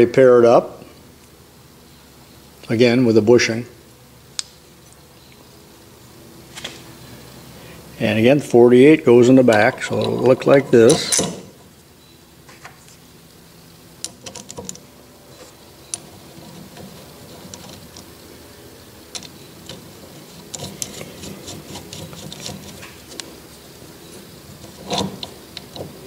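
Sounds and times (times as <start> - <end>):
metal clunk: 9.5 - 11.6.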